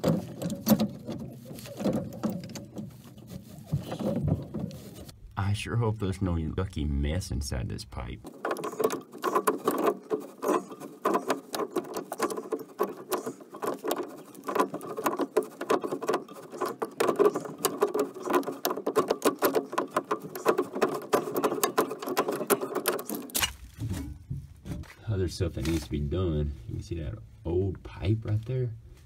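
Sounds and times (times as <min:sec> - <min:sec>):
metal pipe joint crackling and scraping: 0:00.0 - 0:05.2, 0:08.2 - 0:24.9.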